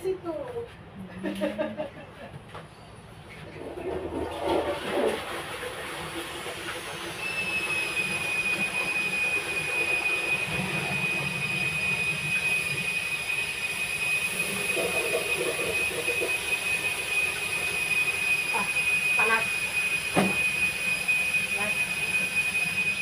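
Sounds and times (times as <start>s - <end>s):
high-pitched whistle: 7.1s - 14.6s, 16.6s - 23.0s.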